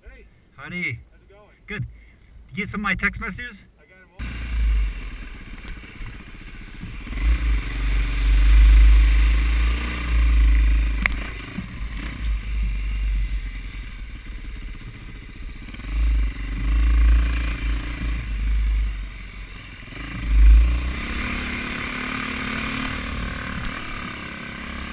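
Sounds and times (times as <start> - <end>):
dirt bike engine revving: 4.2 - 24.9.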